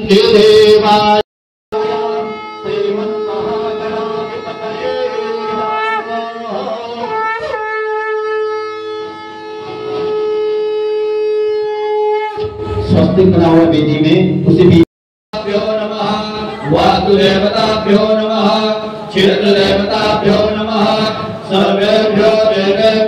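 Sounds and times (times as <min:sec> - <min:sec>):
conch shell blown: 0:01.7 - 0:13.0.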